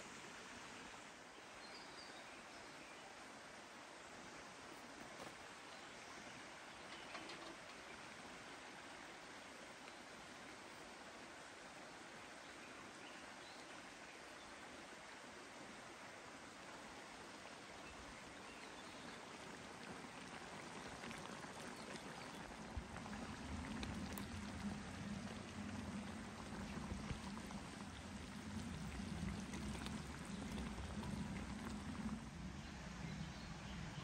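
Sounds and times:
stew sizzling and bubbling: 6.2 - 11.6, 14.3 - 33.1.

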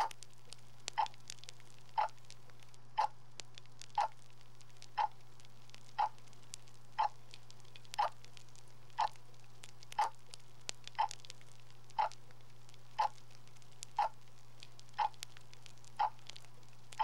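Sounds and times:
clock ticking: 0.0 - 0.2, 0.9 - 1.2, 1.9 - 2.2, 3.0 - 3.2, 3.9 - 4.2, 4.8 - 5.2, 5.9 - 6.2, 7.0 - 7.2, 7.9 - 8.2, 8.9 - 9.2, 9.9 - 10.2, 10.9 - 11.2, 11.9 - 12.2, 13.0 - 13.2, 14.0 - 14.2, 14.9 - 15.3, 15.9 - 17.0.

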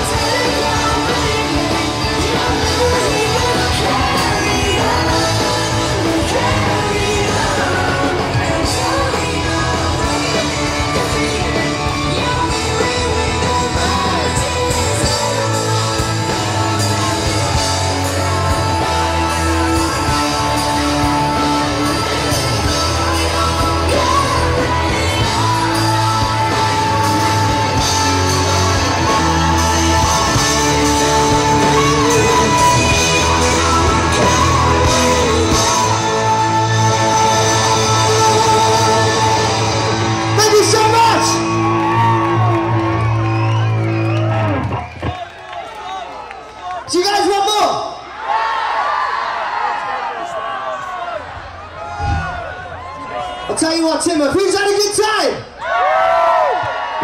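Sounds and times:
person singing: 0.0 - 42.5
live rock band playing: 0.0 - 45.1.

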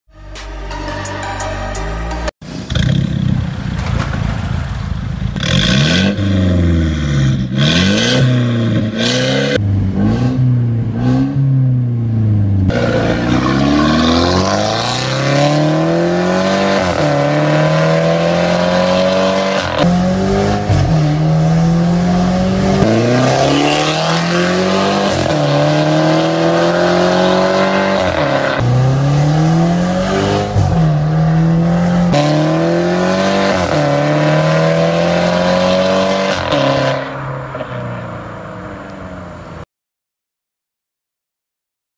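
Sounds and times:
car engine revving: 2.4 - 39.3
car accelerating through gears: 12.7 - 37.7.

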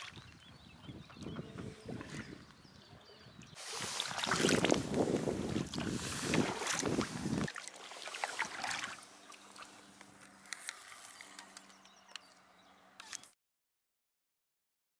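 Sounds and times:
paddle splashing through water: 0.0 - 0.3, 3.6 - 11.6
small clicks: 9.9 - 12.4, 13.0 - 13.4.

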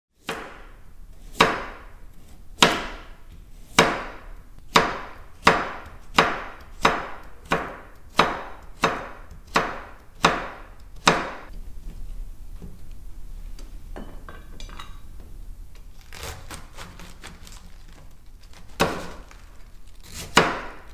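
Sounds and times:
chopping on wooden cutting board: 1.3 - 1.8, 2.6 - 3.1, 3.7 - 11.5, 18.8 - 19.4, 20.0 - 20.9.

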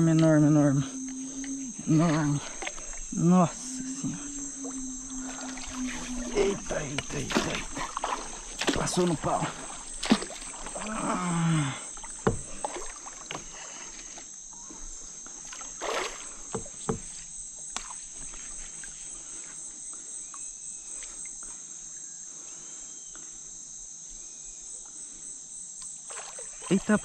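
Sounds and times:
insect chorus: 0.0 - 27.0
knocks from kayak and gear: 12.2 - 13.5, 16.5 - 17.2.

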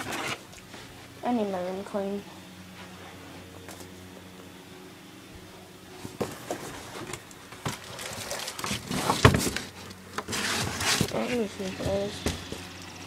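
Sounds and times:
faint steady hum: 0.0 - 13.0
objects rustling and knocking: 5.9 - 13.0.

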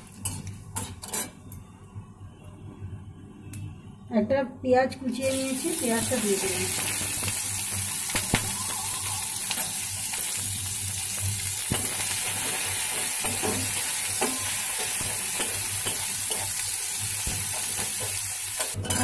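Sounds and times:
onion sizzling in hot oil: 5.1 - 19.0.

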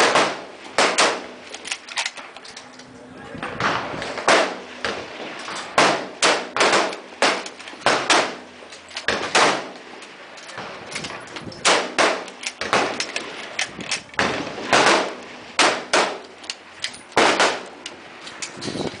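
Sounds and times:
rifle shots with echo: 0.0 - 1.5, 3.6 - 10.0, 11.6 - 16.4, 17.1 - 17.8.

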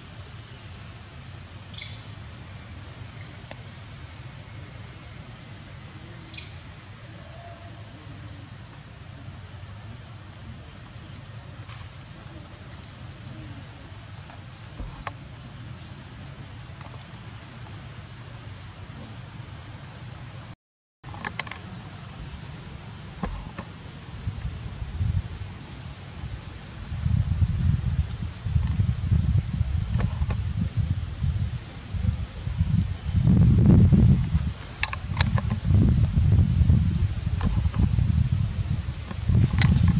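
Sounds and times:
insect chorus drone: 0.0 - 39.9.

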